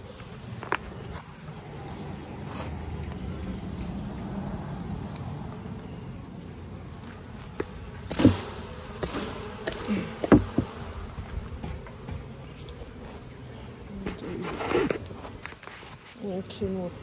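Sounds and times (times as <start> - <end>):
bees buzzing: 0.0 - 17.0
sharp knocks: 9.7 - 10.8.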